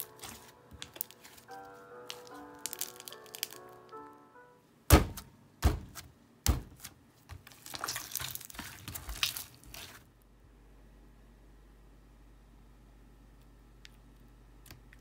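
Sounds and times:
slime squishing and squelching: 0.0 - 3.6, 5.0 - 10.1.

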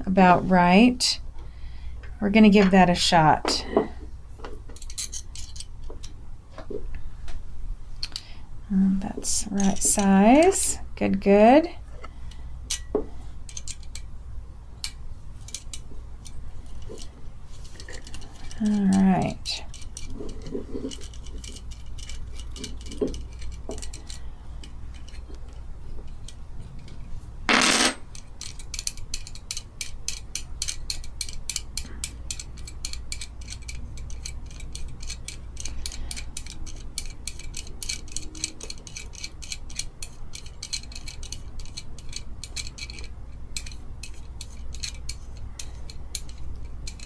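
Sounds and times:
small metallic clicks: 13.5 - 14.1, 14.8 - 17.1, 28.1 - 47.0.

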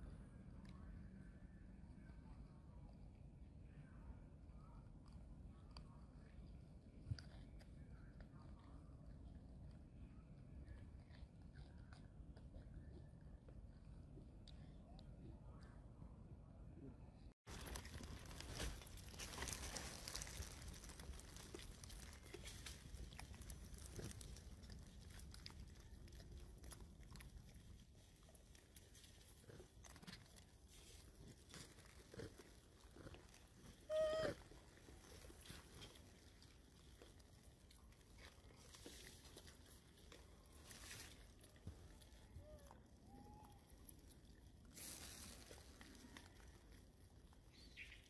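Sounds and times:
monkey chewing and crunching: 10.6 - 14.7, 17.5 - 48.0
monkey high-pitched squeak: 33.9 - 34.4.

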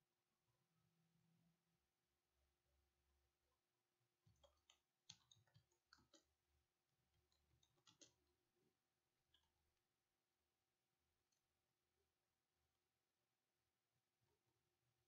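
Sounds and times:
keyboard typing: 4.2 - 6.4, 7.2 - 8.4.

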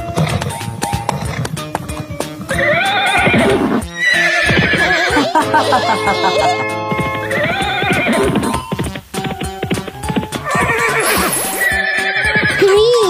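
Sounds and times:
hoof clip-clops: 0.0 - 5.1, 6.9 - 12.8
cartoon horse whinnying: 0.0 - 6.6, 7.2 - 8.7, 10.0 - 12.8
background music: 0.0 - 13.0.

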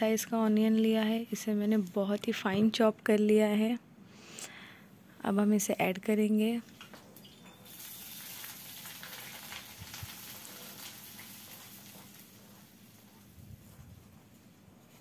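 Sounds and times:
onion sizzling in hot oil: 7.5 - 13.3.

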